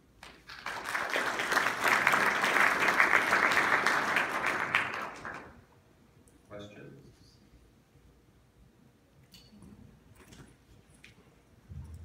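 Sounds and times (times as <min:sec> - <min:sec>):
audience applauding: 0:00.2 - 0:05.6.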